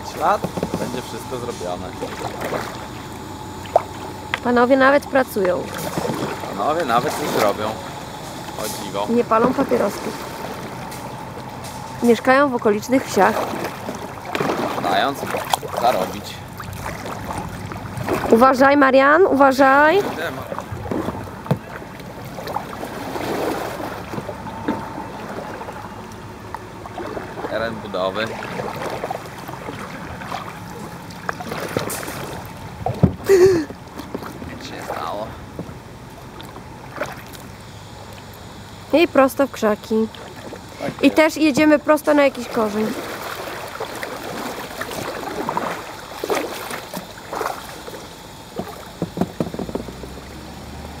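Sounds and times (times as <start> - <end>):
paddle strokes splashing: 0.0 - 38.6, 40.1 - 51.0
water rushing along hull: 0.0 - 51.0
light knocks: 48.6 - 50.3.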